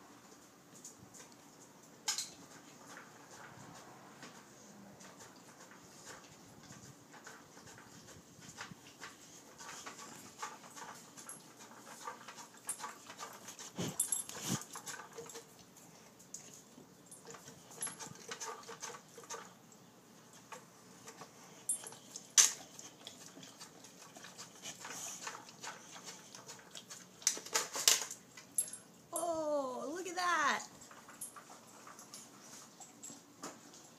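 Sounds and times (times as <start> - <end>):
dog sniffing and snuffling: 2.5 - 19.6, 20.6 - 27.8.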